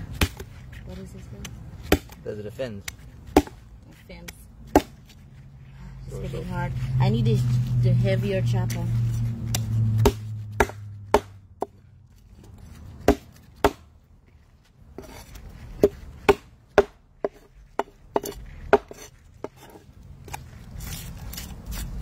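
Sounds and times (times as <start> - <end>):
cleaver chopping on wooden board: 0.2 - 0.5, 1.4 - 2.2, 2.8 - 3.6, 4.2 - 5.1, 9.4 - 11.8, 13.0 - 13.9, 15.8 - 20.4.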